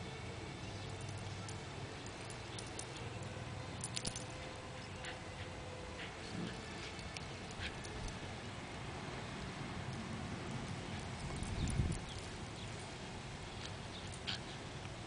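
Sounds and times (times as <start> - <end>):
steady low hiss: 0.0 - 15.0
faint clicks and light jingles: 0.7 - 5.2, 9.9 - 15.0.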